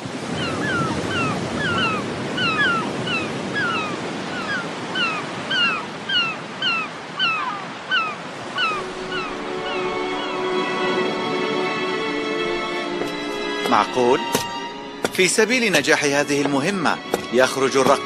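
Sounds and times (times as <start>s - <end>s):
ocean waves: 0.0s - 18.0s
seagulls crying: 0.2s - 18.0s
music: 8.8s - 18.0s.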